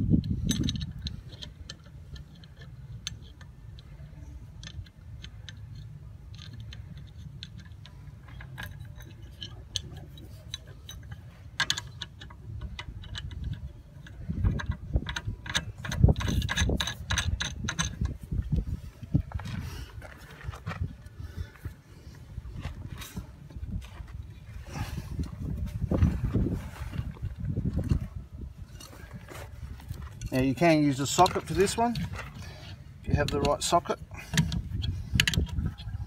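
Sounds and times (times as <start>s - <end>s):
steady low rumble: 0.0s - 36.0s
metal bolts and nuts clinking: 0.2s - 18.8s, 26.9s - 36.0s.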